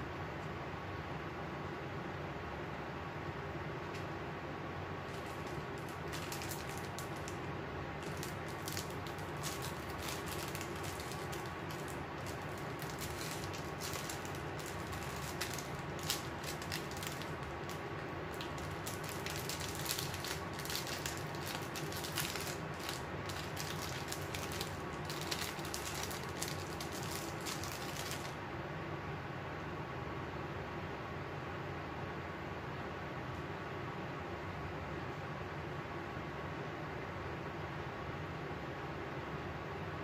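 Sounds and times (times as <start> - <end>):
electric fan running: 0.0 - 40.0
plastic bags crinkling: 5.0 - 28.4.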